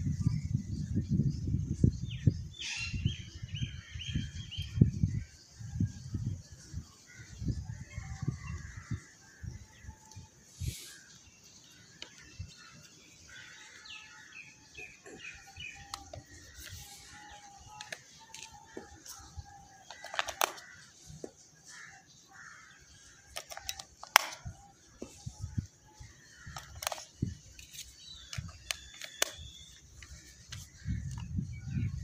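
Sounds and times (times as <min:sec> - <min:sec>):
plastic clicks and taps: 0:17.8 - 0:18.9, 0:19.9 - 0:20.6, 0:23.3 - 0:25.1, 0:26.5 - 0:27.1, 0:28.2 - 0:29.4.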